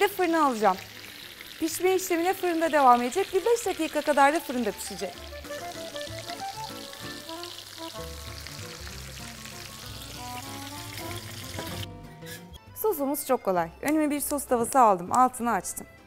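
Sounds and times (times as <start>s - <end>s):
hot oil sizzling: 0.0s - 11.9s
light background music: 0.0s - 16.0s.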